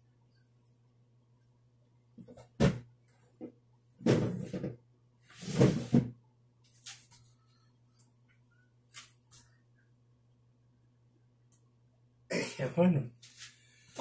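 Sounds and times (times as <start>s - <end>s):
scraping rustling noises: 6.7s - 7.5s, 13.2s - 14.0s.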